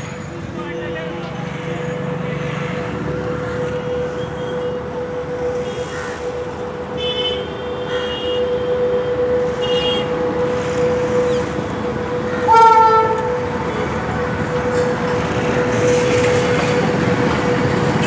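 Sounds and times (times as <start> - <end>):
high-pitched horn toots: 1.7 - 17.3.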